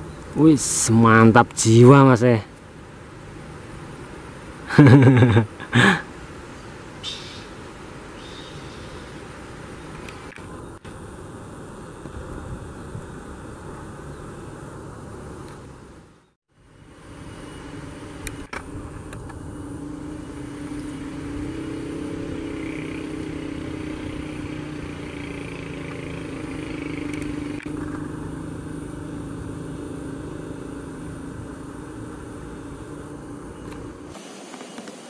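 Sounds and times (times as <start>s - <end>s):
motor droning: 16.6s - 35.0s.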